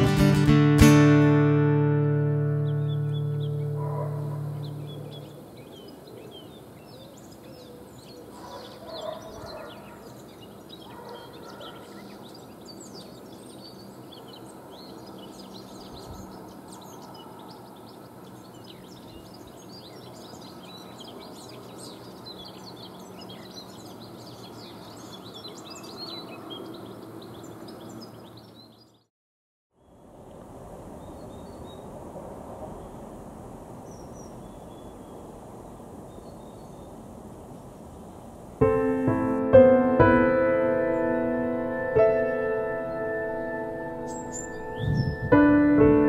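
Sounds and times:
songbirds chirping and singing: 2.2s - 29.1s, 42.0s - 46.0s.

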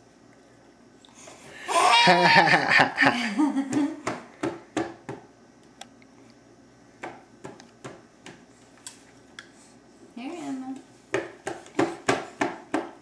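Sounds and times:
baby laughing: 1.7s - 3.2s.

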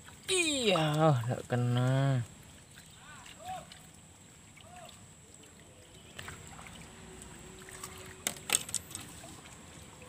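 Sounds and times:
fishing rod clicks and rustles: 7.8s - 9.4s.

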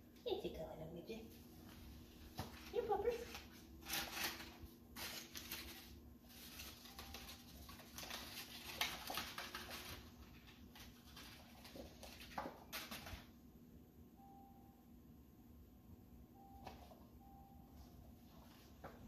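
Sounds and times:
paper ball rustling: 2.3s - 13.3s
puppy scampering on floor: 6.5s - 13.3s.

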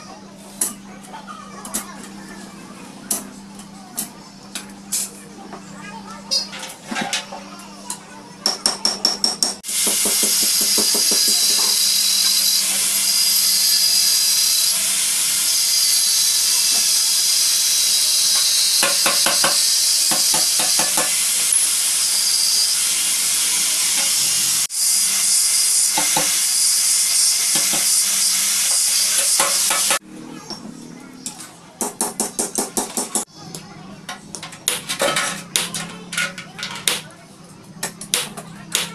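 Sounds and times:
angle grinder cutting metal: 9.6s - 30.0s.

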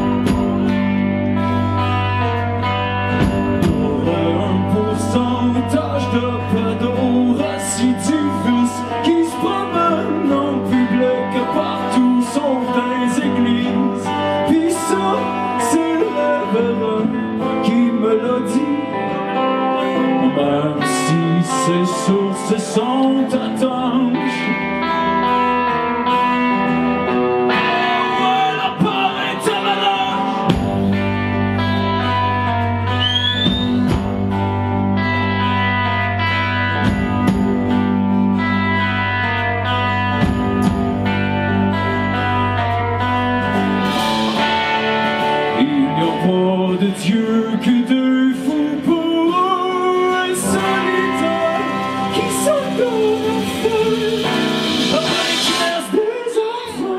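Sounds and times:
live band with guitars: 0.0s - 56.9s
man singing: 3.5s - 25.7s, 27.1s - 30.8s, 43.8s - 56.9s.

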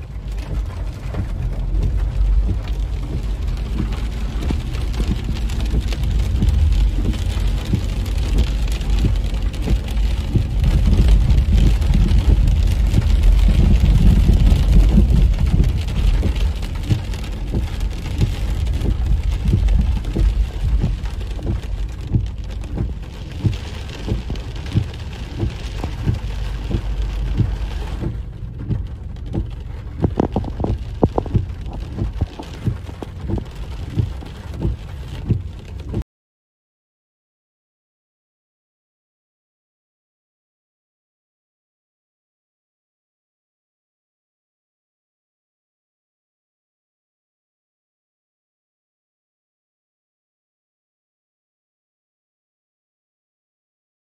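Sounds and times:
heavy rain on car roof: 0.0s - 36.0s.

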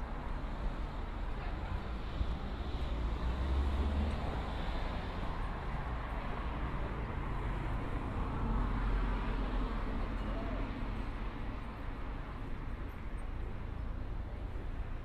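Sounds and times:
cars passing: 1.6s - 11.4s.

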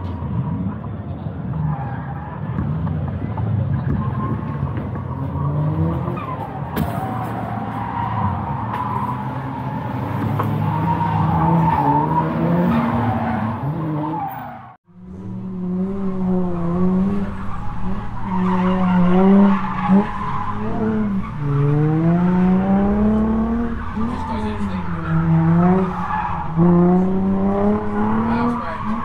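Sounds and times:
vehicle engine revving: 9.0s - 29.0s.

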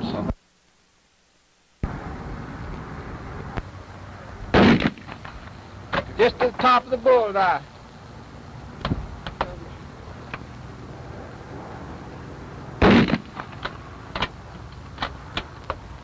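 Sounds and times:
loud gunshot: 4.5s - 5.2s, 12.8s - 13.5s
faint sharp gunshot cracks: 4.5s - 5.3s, 12.8s - 13.5s.

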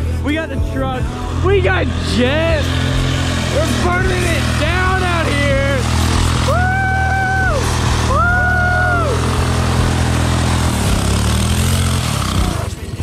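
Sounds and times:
small gas engine revving: 0.8s - 13.0s
tyres spinning in dirt: 1.3s - 13.0s
person shouting: 6.4s - 9.2s.

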